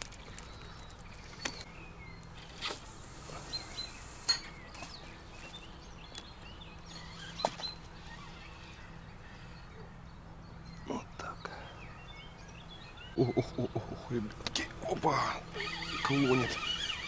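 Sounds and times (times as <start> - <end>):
small birds chirping: 0.0 - 17.0
fishing line hissing off reel: 2.4 - 4.4.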